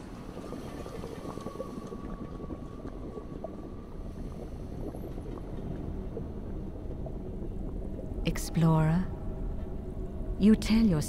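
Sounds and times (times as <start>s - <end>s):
underwater rushing and bubbling water: 0.0s - 10.4s.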